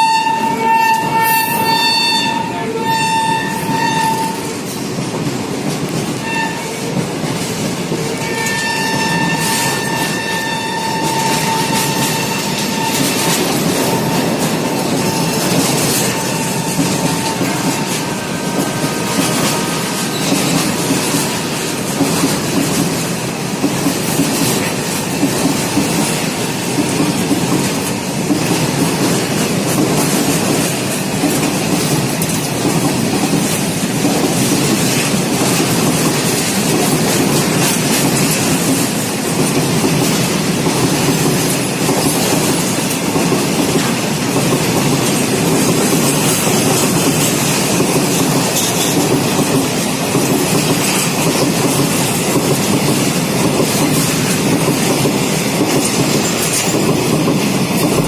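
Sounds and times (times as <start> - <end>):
train wheels clattering over rail joints: 0.0 - 58.0
wheel squeal: 8.2 - 18.0.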